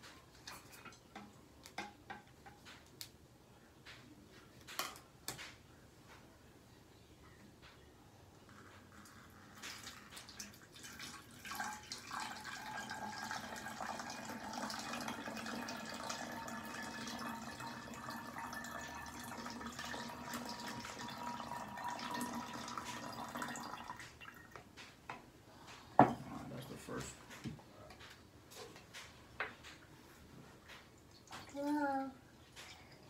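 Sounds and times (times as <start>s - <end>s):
water pouring into plastic bottle: 9.0s - 24.5s.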